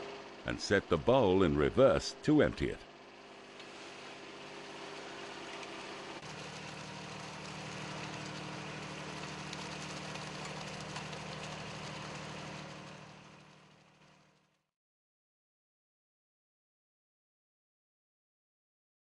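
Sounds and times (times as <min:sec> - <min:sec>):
loader engine running: 0:00.0 - 0:14.4
cement mixer bowl turning: 0:03.4 - 0:14.5.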